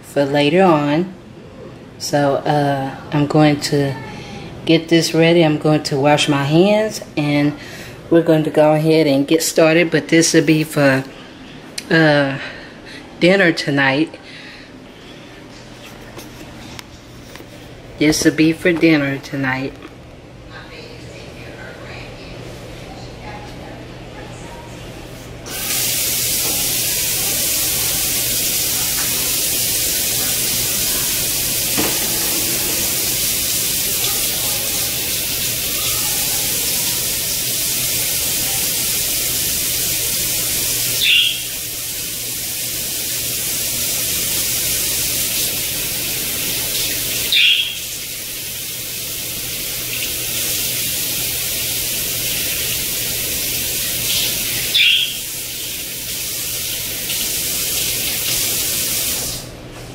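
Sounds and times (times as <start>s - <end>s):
faucet running into steel sink: 25.5s - 59.4s.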